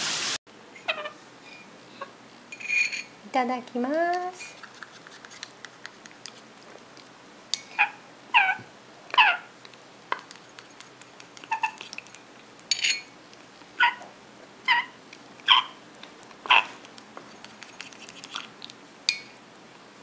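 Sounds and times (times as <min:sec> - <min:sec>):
parrot chick begging calls: 0:07.8 - 0:08.6.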